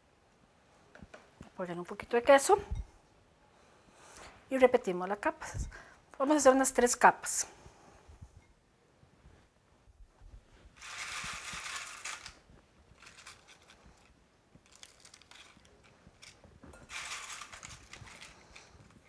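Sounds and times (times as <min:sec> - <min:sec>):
tortilla chips crackling: 0:10.8 - 0:18.7.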